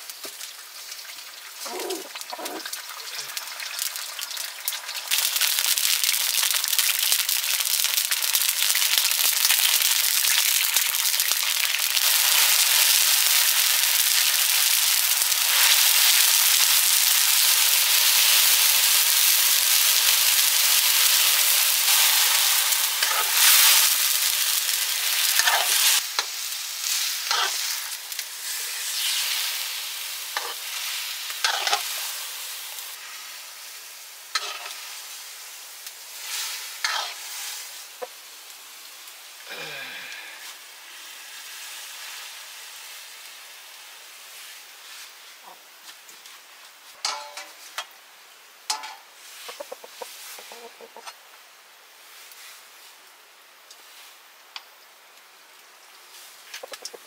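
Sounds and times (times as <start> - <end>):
oil popping and crackling: 0.0 - 33.2, 54.5 - 57.0
food sizzling in oil: 0.0 - 57.0.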